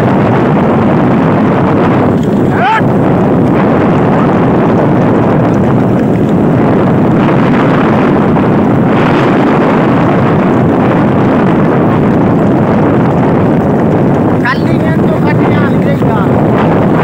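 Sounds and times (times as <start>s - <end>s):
motorcycle engine running: 0.0s - 17.0s
wind rush on microphone: 0.0s - 17.0s.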